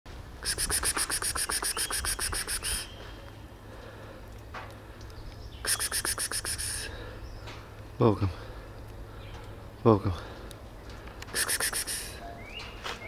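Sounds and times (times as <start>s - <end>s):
person hissing to call a cat: 0.4s - 2.9s, 5.7s - 7.0s, 11.4s - 12.2s.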